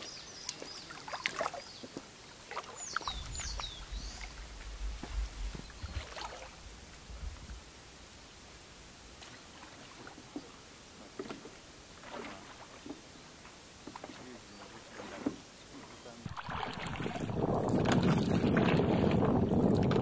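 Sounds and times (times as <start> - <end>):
lake water lapping: 0.0 - 20.0
low rumble: 3.1 - 7.7.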